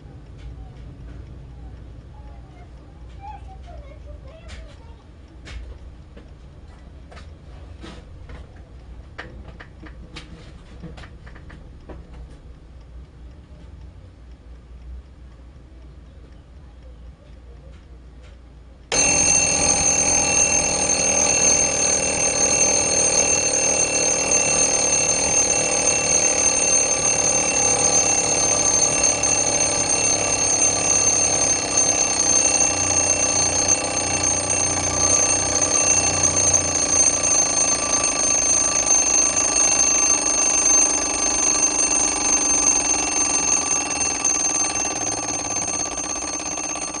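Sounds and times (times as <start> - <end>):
alarm clock ticking: 18.8 - 47.0
alarm bell ringing: 18.9 - 47.0.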